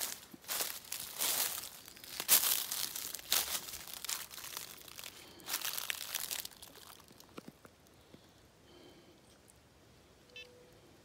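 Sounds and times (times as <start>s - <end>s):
footsteps crunching dry leaves: 0.0s - 7.3s.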